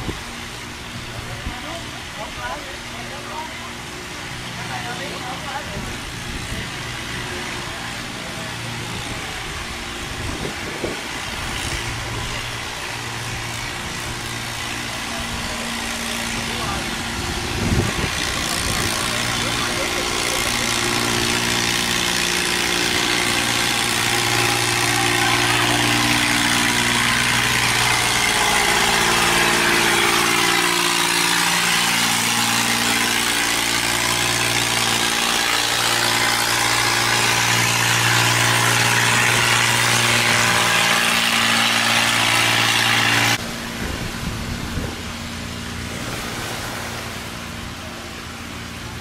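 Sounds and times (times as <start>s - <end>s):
boat engine droning: 0.0s - 49.0s
water rushing: 40.2s - 49.0s.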